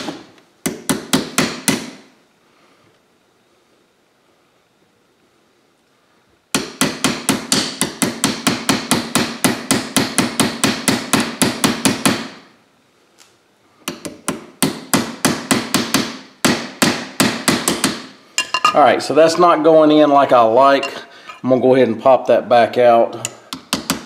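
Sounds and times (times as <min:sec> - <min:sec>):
small hammer tapping on metal: 0:17.7 - 0:18.8.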